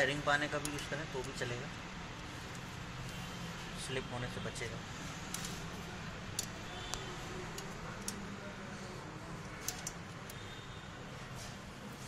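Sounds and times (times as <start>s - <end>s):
metallic spanner clicks: 9.6s - 10.4s.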